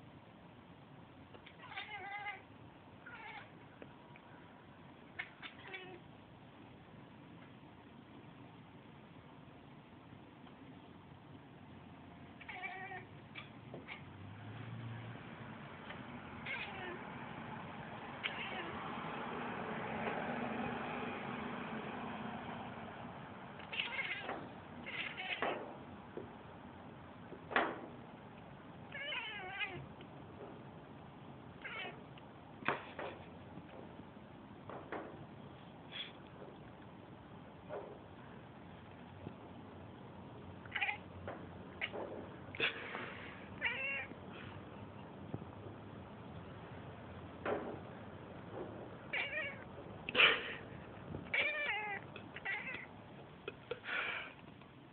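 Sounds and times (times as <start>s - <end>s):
cat meowing: 1.4s - 3.6s, 5.2s - 6.0s, 12.4s - 14.1s, 16.4s - 17.0s, 18.2s - 18.8s, 23.6s - 25.5s, 28.9s - 29.9s, 31.6s - 32.0s, 40.6s - 41.1s, 43.6s - 44.2s, 49.1s - 49.7s, 51.3s - 52.9s.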